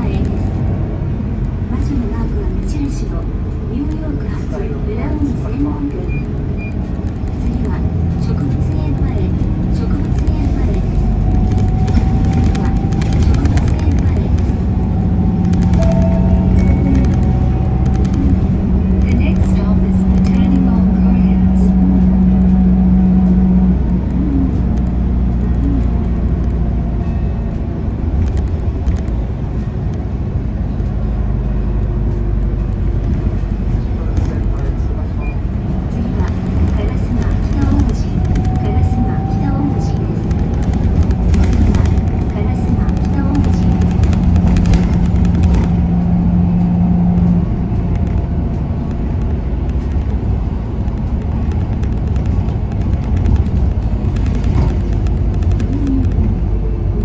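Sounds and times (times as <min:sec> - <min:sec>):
bus engine and road rumble: 0:00.0 - 0:57.0
low hum: 0:00.0 - 0:57.0
hum: 0:06.0 - 0:30.0.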